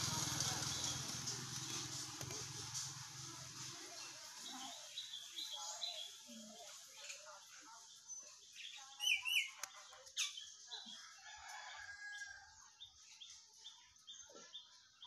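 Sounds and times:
faint bird chirp: 0:04.0 - 0:15.0.

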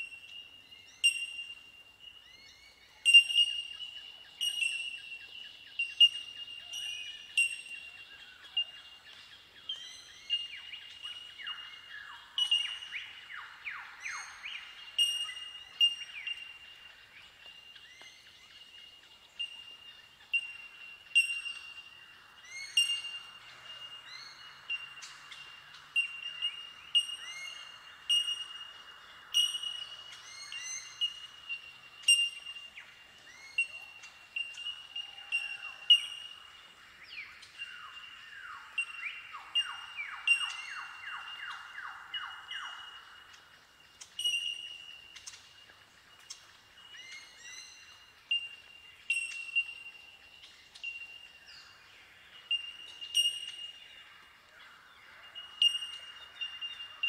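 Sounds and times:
birds chiming bell-like calls: 0:00.0 - 0:57.0.

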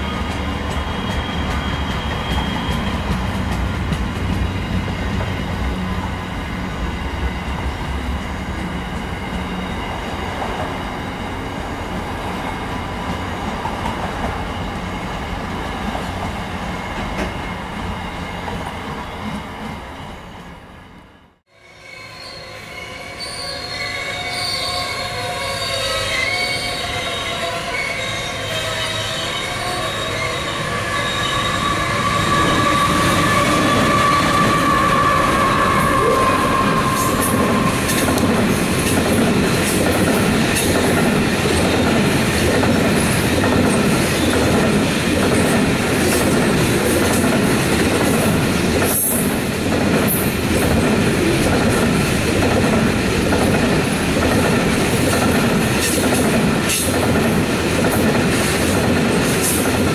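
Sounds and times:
rumble of train wheels: 0:00.0 - 0:21.2, 0:26.7 - 0:59.9
train wheels squealing on rails: 0:00.0 - 0:59.9.

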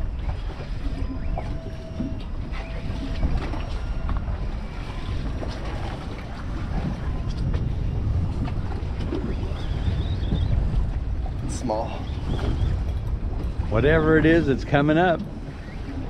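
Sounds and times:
water lapping against boat hull: 0:00.0 - 0:16.0
wind buffeting microphone: 0:00.0 - 0:16.0.

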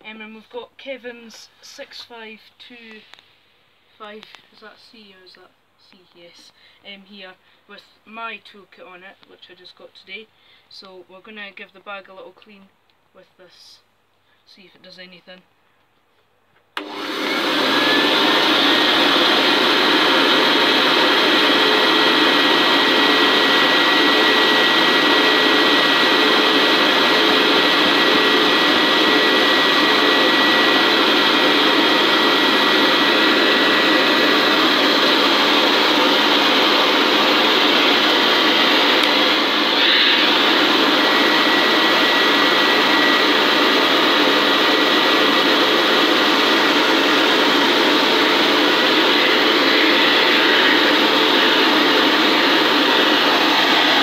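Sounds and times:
vacuum cleaner running: 0:16.8 - 0:54.0.

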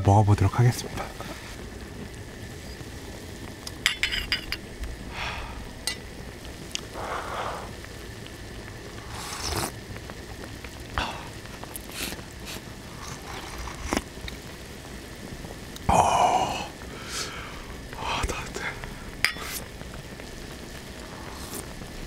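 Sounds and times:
person sipping and slurping broth: 0:09.1 - 0:09.8, 0:11.2 - 0:14.1, 0:21.1 - 0:21.7.

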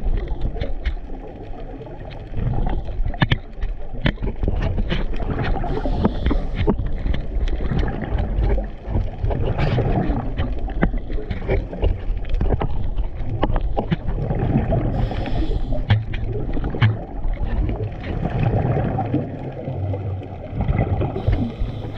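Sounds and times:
exhaled bubbles: 0:00.0 - 0:21.9
underwater rumble: 0:00.0 - 0:21.9.

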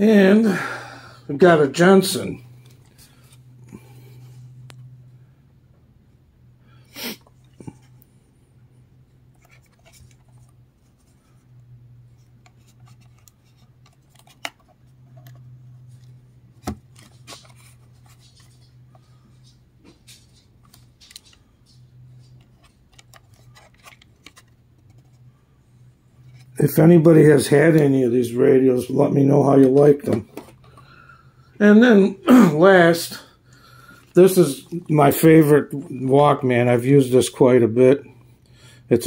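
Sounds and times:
faint low hum: 0:00.0 - 0:39.0
clicks of plastic radio case handled: 0:12.4 - 0:17.6, 0:22.3 - 0:25.1.

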